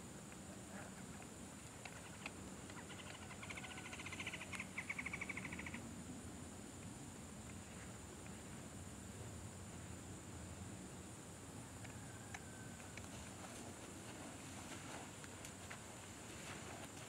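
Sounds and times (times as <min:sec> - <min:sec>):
rapid trilled animal call: 0:02.8 - 0:05.8.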